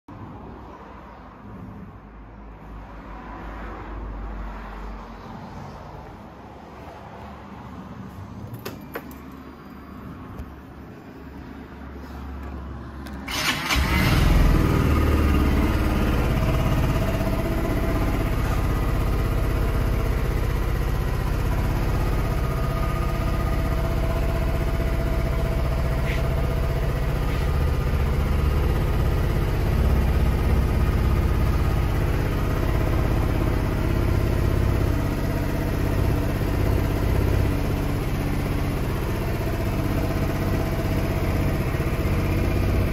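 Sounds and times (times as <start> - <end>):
scooter engine starting and idling: 13.0 - 42.9.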